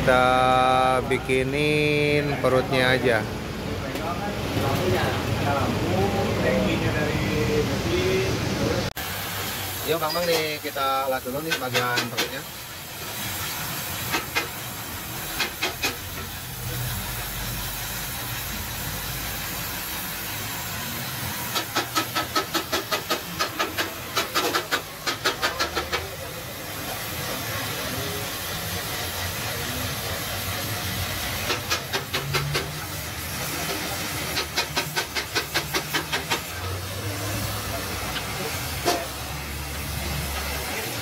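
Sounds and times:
welding torch hissing: 8.9 - 41.0.

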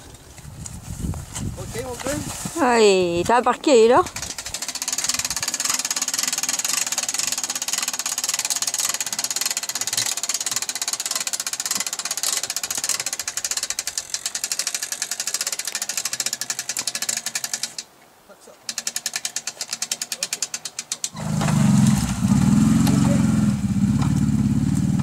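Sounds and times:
atv engine idling: 3.9 - 17.7, 21.1 - 25.0.

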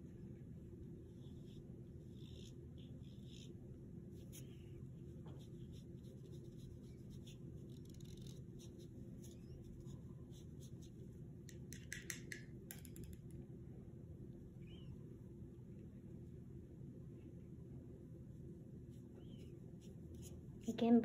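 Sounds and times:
paintbrush scratching on paper: 1.1 - 11.2, 18.8 - 21.0
brush tapping in plastic cup: 11.4 - 13.3.

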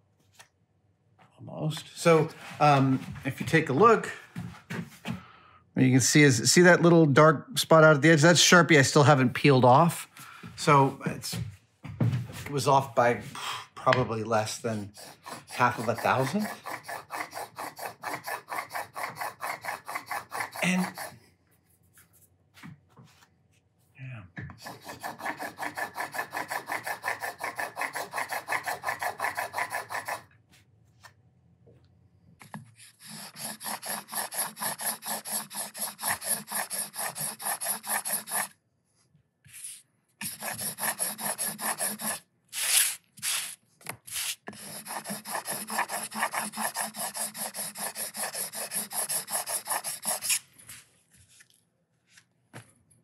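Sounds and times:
chisel scraping on sharpening stone: 14.9 - 21.2, 24.6 - 30.2, 32.9 - 38.5, 40.2 - 42.9, 44.4 - 50.4.

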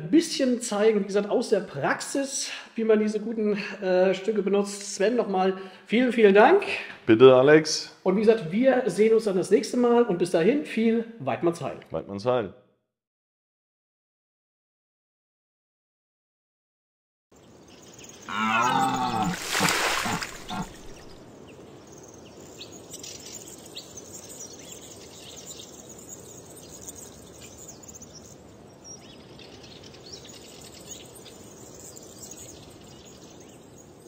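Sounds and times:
faint bird chirps: 17.4 - 34.0
deep animal bellow: 18.3 - 21.0.

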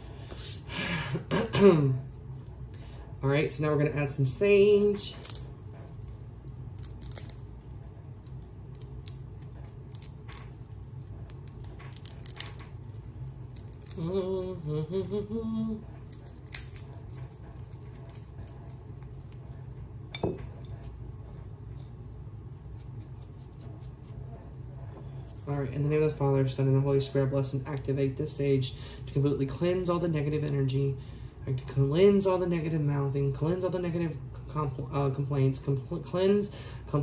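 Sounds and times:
steady low hum: 0.0 - 37.0
dry leaves crackling: 6.8 - 7.7.

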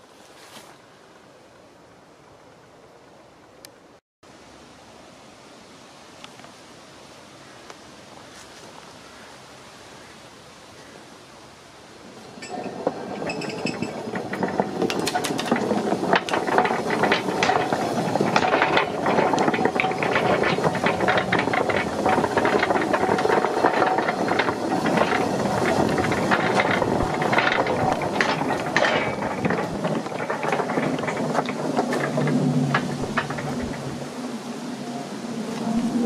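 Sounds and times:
iron wheels clanking on rails: 12.0 - 34.4.

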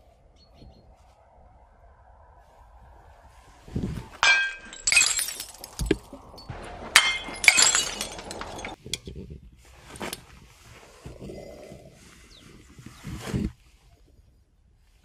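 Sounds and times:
glass jar smashing against wall: 4.2 - 8.8.

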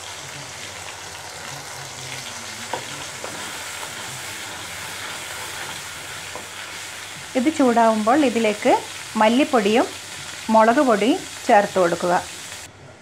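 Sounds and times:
sauce sizzling in oil: 0.0 - 12.7.

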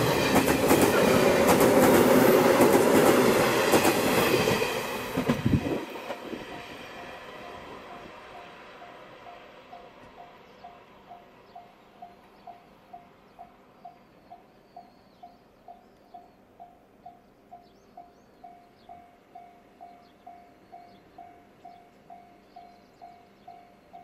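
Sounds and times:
faint bird chirps: 10.3 - 24.0.

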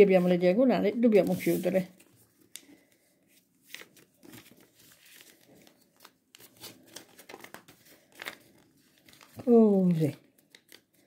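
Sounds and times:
soft paper crackles: 1.0 - 11.0
paper rustling and crinkling: 1.1 - 11.0.

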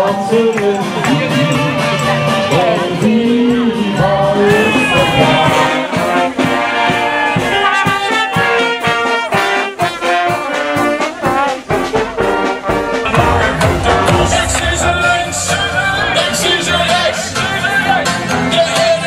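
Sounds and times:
street brass band playing: 0.0 - 19.0
different music: 9.1 - 19.0
drum beat: 11.6 - 16.4.

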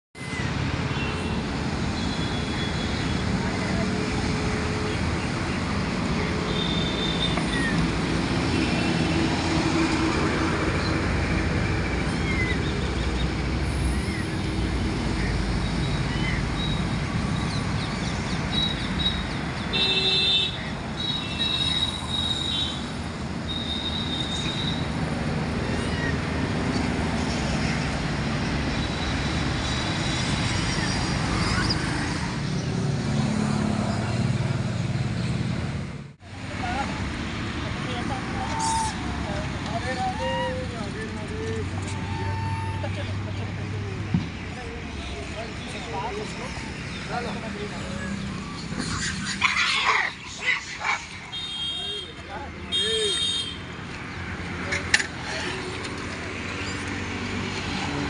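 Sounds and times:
road traffic noise: 0.2 - 58.0.

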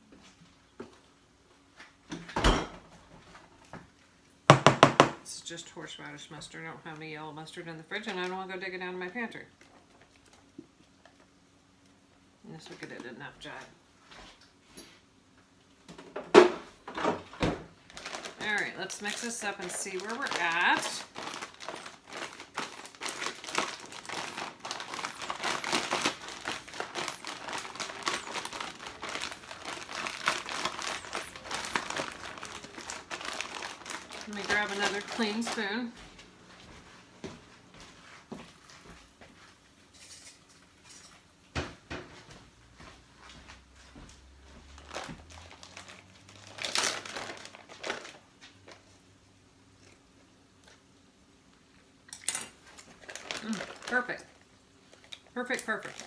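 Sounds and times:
plastic bag crinkling: 17.8 - 36.0, 44.6 - 49.0, 52.2 - 56.0.

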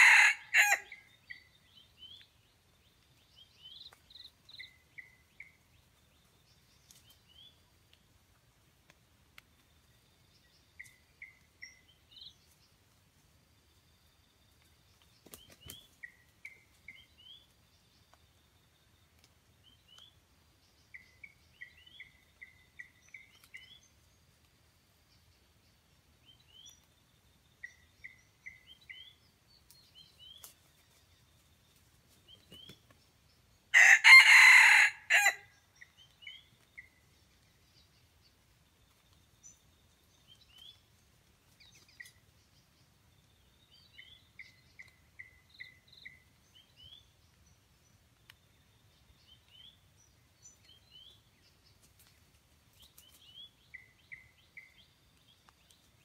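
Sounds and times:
rooster crowing: 0.0 - 1.0, 33.8 - 35.5.

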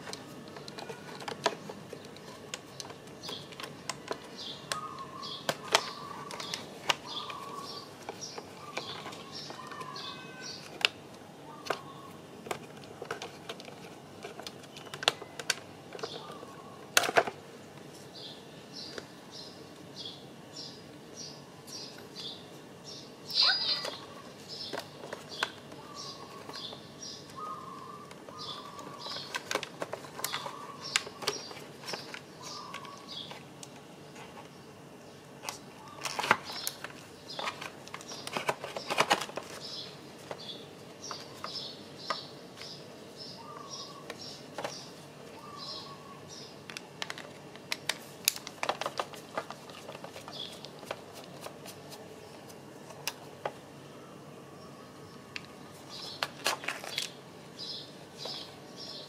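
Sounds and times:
plastic parts clicking and rattling: 0.0 - 4.8, 12.4 - 17.4, 28.0 - 34.4, 35.4 - 40.5, 46.6 - 51.5
bird chirps: 20.1 - 24.8, 30.2 - 33.3, 39.6 - 46.6.

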